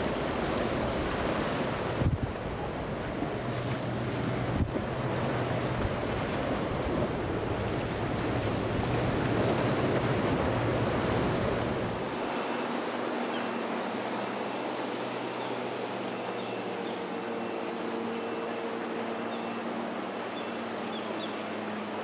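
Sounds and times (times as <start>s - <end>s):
wind on microphone: 0.0s - 12.1s
boat engines humming: 0.0s - 22.0s
surf: 0.0s - 22.0s.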